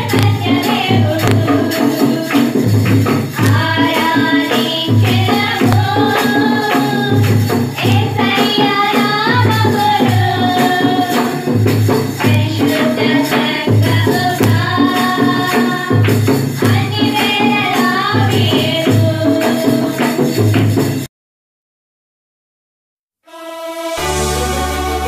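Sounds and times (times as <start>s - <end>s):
low drum beat: 0.0s - 8.3s
women singing worship song: 0.0s - 20.4s
tambourine: 0.0s - 21.1s.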